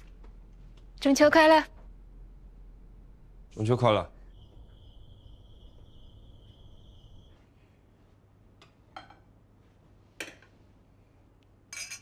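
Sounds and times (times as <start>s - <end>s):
night insects chirring: 2.9s - 7.6s
tableware clinking: 8.9s - 9.3s, 11.7s - 12.0s.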